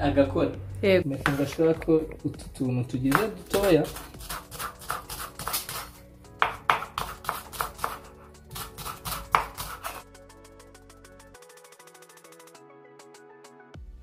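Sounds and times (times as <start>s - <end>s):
background music: 0.0s - 14.0s
knife chopping on wooden board: 1.2s - 1.6s, 3.1s - 10.0s.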